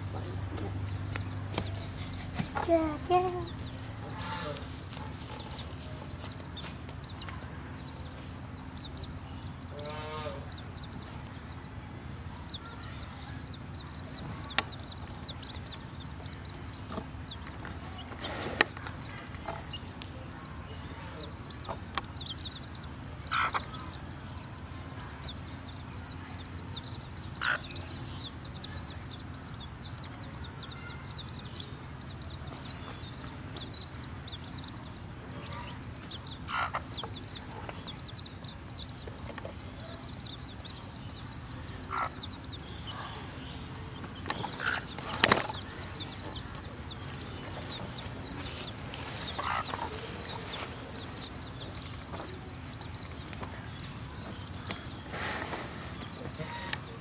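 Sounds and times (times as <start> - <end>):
chicks peeping: 0.0 - 57.0
loud single chick calls: 21.1 - 52.4, 53.0 - 57.0.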